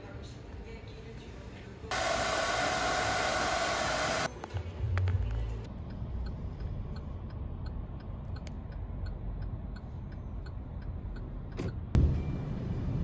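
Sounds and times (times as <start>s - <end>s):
road rumble inside car: 4.3s - 13.0s
turn signal ticking: 5.3s - 12.0s.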